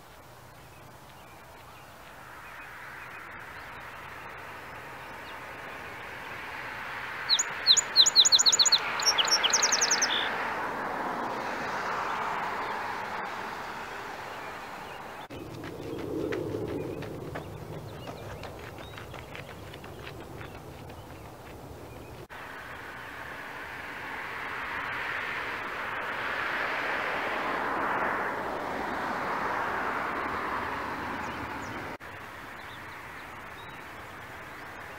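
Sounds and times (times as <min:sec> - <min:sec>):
background rushing noise: 0:00.0 - 0:34.9
songbird chirping and trilling: 0:07.1 - 0:10.4, 0:16.8 - 0:22.3, 0:31.2 - 0:34.9.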